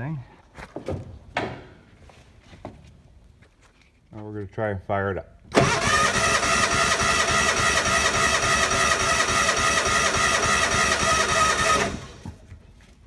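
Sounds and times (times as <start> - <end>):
engine cranking not firing: 5.5 - 12.3.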